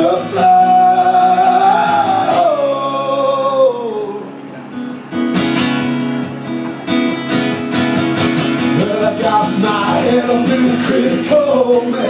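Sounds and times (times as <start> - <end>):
man singing: 0.0 - 4.3, 8.6 - 12.0
strummed acoustic guitar: 0.0 - 12.0.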